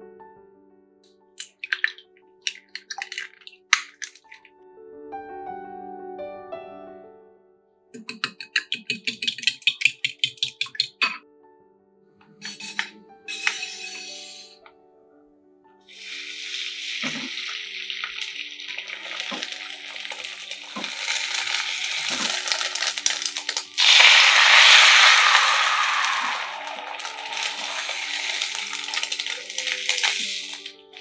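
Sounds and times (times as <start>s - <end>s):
egg pouring into a pan: 1.4s - 4.5s, 8.0s - 11.2s, 12.4s - 14.4s, 15.9s - 31.0s
utensils knocking on a pan: 8.0s - 11.2s
egg sizzling in a frying pan: 12.4s - 14.5s, 15.9s - 31.0s.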